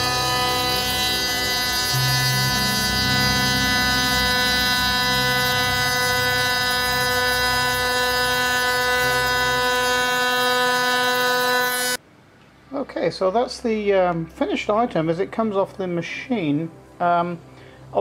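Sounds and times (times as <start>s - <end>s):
router spindle whine cutting metal: 0.0s - 12.0s.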